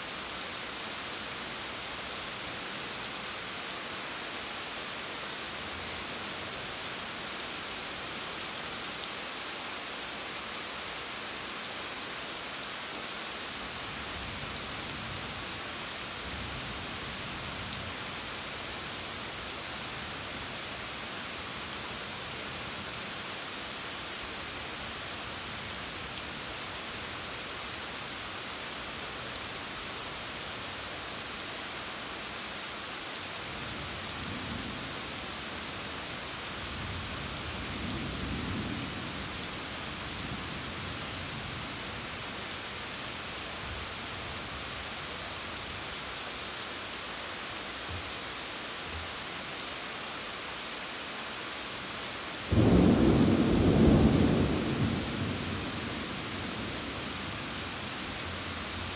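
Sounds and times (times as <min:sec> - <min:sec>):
rain hissing: 0:00.6 - 0:58.9
thunder rumbling: 0:52.5 - 0:56.0.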